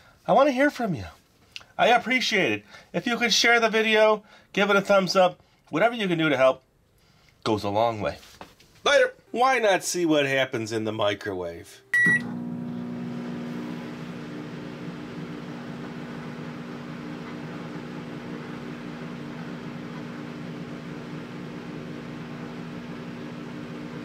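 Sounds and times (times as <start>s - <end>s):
microwave beep: 11.9s - 13.5s
microwave humming: 12.0s - 24.0s.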